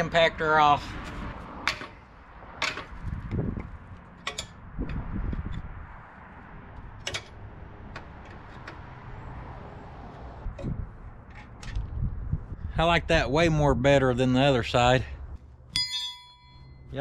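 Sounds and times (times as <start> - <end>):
metal hardware clinking: 4.1 - 5.0, 15.7 - 16.9.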